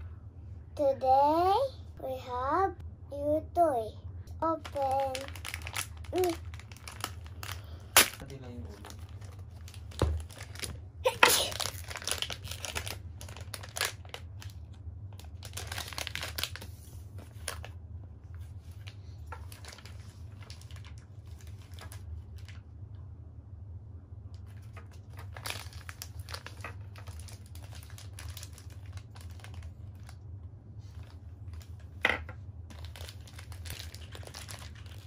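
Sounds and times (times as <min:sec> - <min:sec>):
plastic wrapper crinkling: 0:04.4 - 0:22.6, 0:24.4 - 0:30.2, 0:30.8 - 0:32.1, 0:32.7 - 0:35.0
plastic bag tearing: 0:04.5 - 0:14.6, 0:15.2 - 0:16.7, 0:18.8 - 0:22.6, 0:24.6 - 0:30.2, 0:32.7 - 0:35.0.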